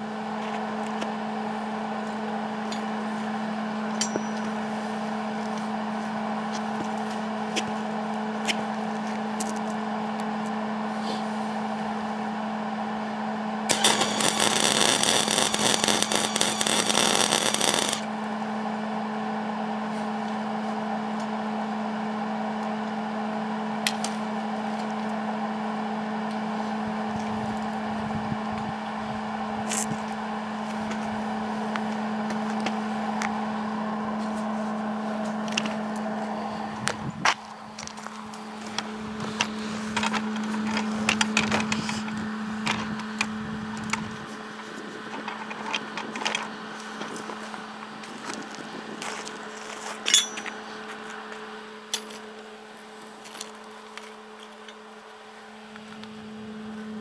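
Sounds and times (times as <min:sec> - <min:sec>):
arc welder humming: 0:00.0 - 0:57.0
arc welding crackling: 0:13.7 - 0:18.1.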